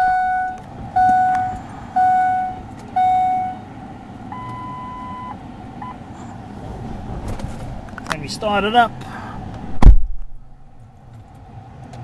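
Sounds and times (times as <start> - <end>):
high steady beep: 0.0 - 3.6, 4.3 - 6.0
short beep: 0.0 - 3.6, 4.3 - 6.0
dashboard warning chime: 0.0 - 3.7, 4.3 - 6.0.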